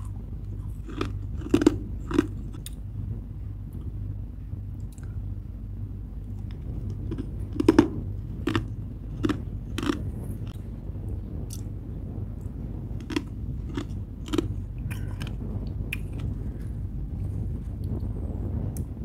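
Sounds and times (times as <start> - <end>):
frost being crunched and chewed: 0.0 - 2.8, 6.4 - 10.6, 13.0 - 16.8
steady low hum: 0.0 - 19.0.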